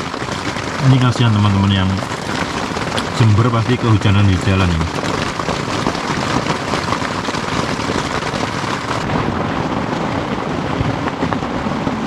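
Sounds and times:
heavy rain on a tent: 0.0 - 12.0.

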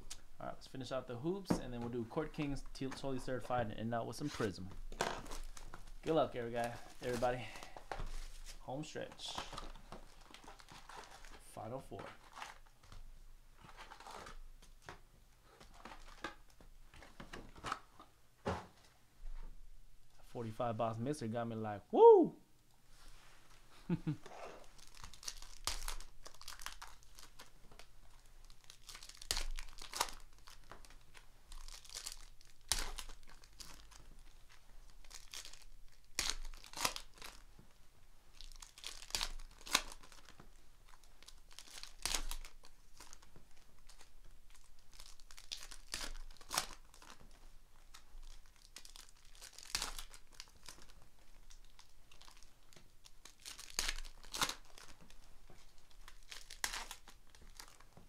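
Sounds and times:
foil wrappers tearing and crinkling: 4.9 - 7.7, 24.6 - 37.5, 38.3 - 57.9.

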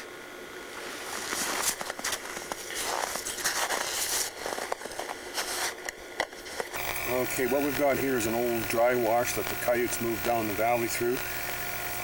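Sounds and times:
footsteps in snow: 0.7 - 5.8.

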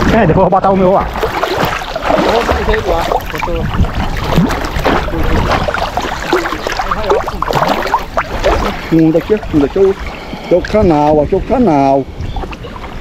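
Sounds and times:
water sloshing and splashing: 0.8 - 13.0.

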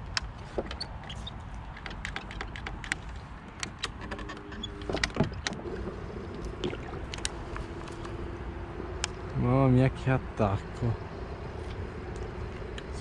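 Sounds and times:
gear clicking in plastic kayak: 0.0 - 8.2
faint steady hum: 4.3 - 13.0
faint water noise: 5.6 - 9.0.

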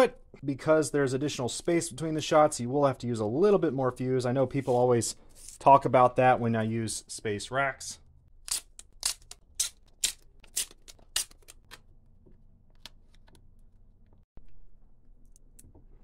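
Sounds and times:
paper tape tearing rasp: 8.5 - 11.7.

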